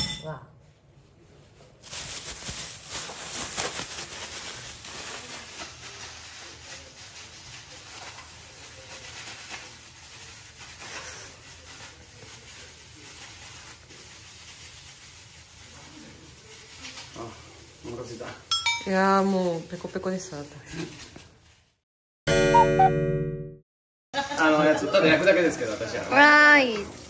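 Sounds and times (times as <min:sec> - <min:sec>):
plastic bag crinkling: 0:01.8 - 0:18.3.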